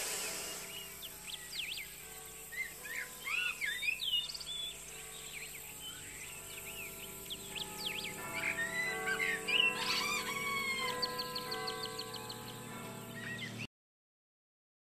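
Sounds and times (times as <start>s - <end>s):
birds chirping and whistling: 0.0s - 13.7s
faint held musical chord: 0.0s - 13.7s.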